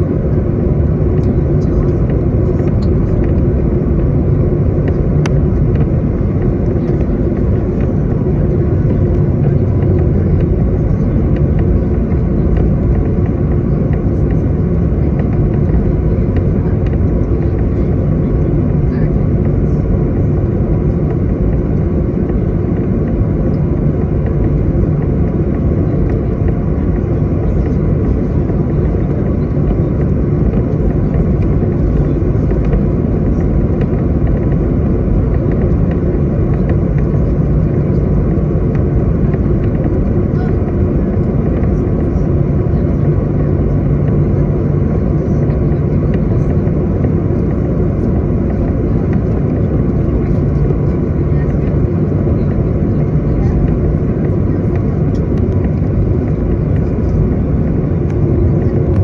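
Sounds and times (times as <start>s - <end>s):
jet cabin engine rumble: 0.0s - 59.0s.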